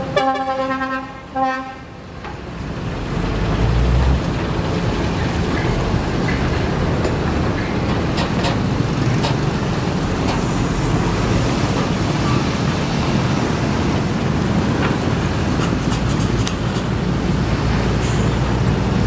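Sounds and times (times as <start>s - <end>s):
excavator diesel engine running: 2.0s - 19.0s.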